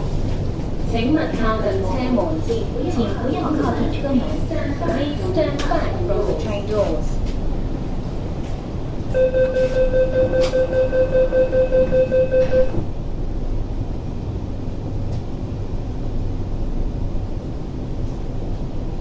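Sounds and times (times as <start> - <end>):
train running rumble: 0.0 - 19.0
door-closing warning beeps: 9.2 - 12.9.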